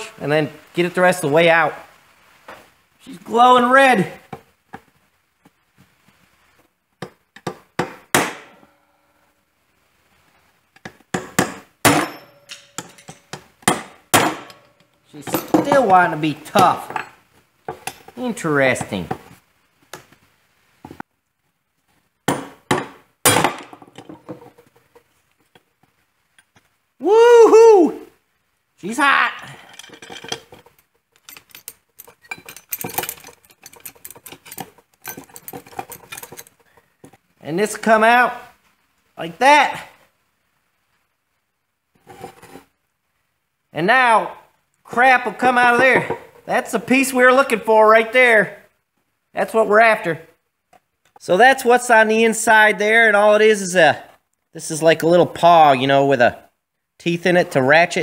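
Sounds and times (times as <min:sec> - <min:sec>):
hammer striking steel punch: 0:07.8 - 0:08.6, 0:11.2 - 0:14.6
metal clinks and scrapes: 0:12.0 - 0:13.6, 0:14.3 - 0:19.0, 0:23.8 - 0:25.2, 0:29.4 - 0:37.2, 0:42.0 - 0:42.7.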